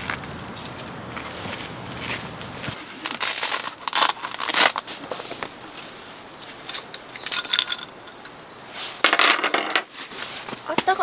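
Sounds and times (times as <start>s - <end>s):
pouch and fabric rustling: 2.0s - 6.0s.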